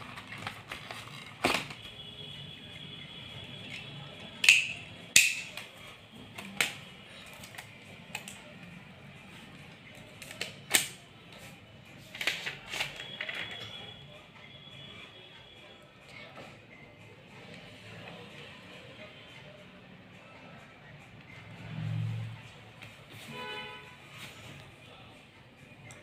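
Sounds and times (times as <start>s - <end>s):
packaging rustling: 0.0s - 1.8s.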